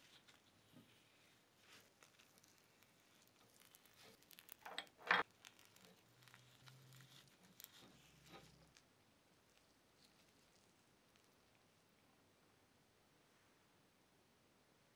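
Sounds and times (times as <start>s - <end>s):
fingers smearing butter in pan: 0.0s - 8.8s.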